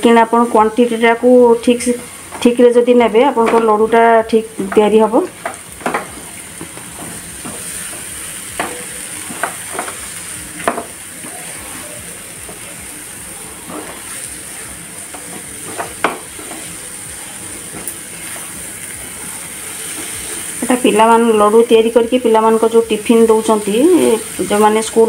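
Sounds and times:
steady sizzle: 0:00.0 - 0:25.0
spatula scraping a frying pan: 0:13.5 - 0:16.8, 0:17.6 - 0:20.6.

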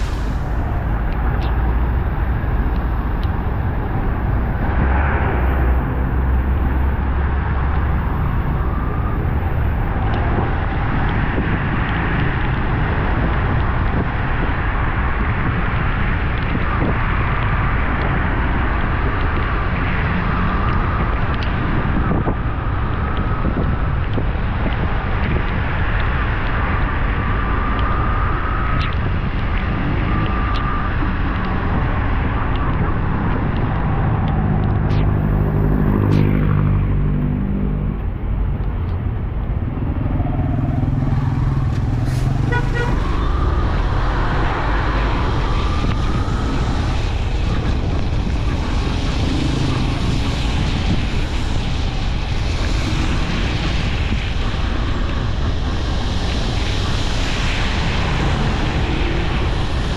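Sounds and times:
motorcycle engine and wind rush: 0:00.0 - 0:59.9
passing engine: 0:27.6 - 0:59.9
vehicle horns tooting: 0:42.4 - 0:43.2.

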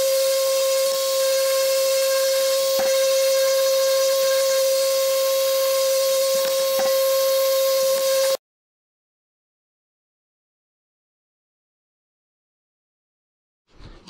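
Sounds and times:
orbital sander whining: 0:00.0 - 0:08.4.

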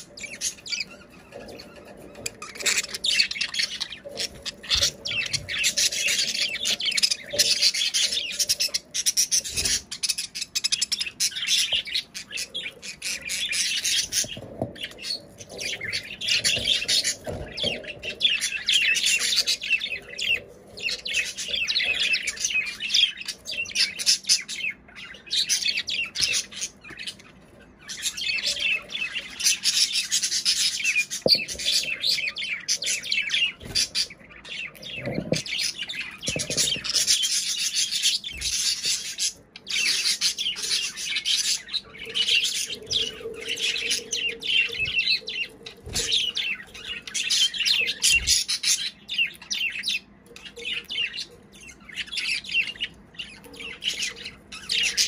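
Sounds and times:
budgerigars chattering: 0:00.0 - 0:55.0.

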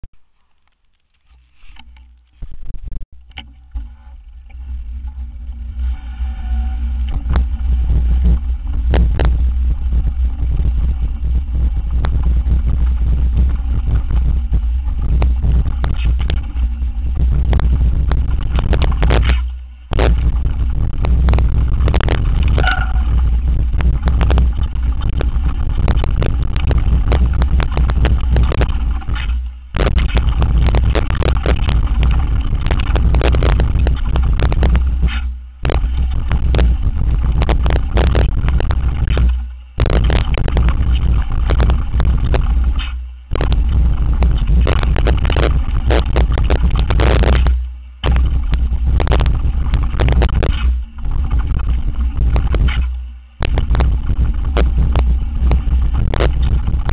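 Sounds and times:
mountain bike rattling: 0:00.3 - 0:56.9
wind rumble on microphone: 0:01.3 - 0:56.9.

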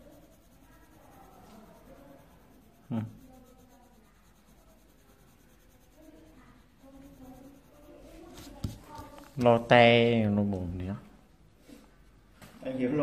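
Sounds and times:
paper rubbing on table: 0:00.0 - 0:09.6.

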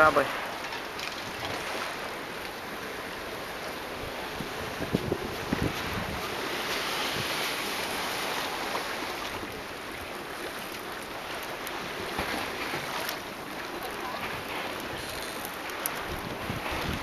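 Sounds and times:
small sea waves: 0:00.0 - 0:17.0
wind on microphone: 0:04.0 - 0:07.5, 0:14.3 - 0:17.0.

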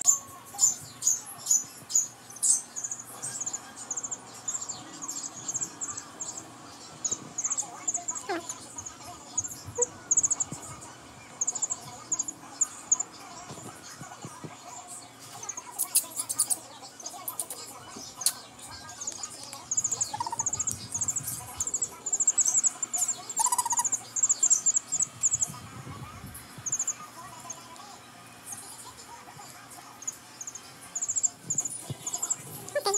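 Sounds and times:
chick peeping: 0:18.2 - 0:27.6.

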